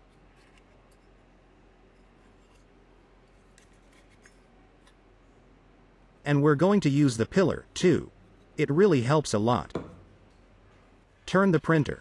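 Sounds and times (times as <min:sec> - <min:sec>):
faint clicks and rubs from handling: 0:00.0 - 0:01.2, 0:03.3 - 0:05.0.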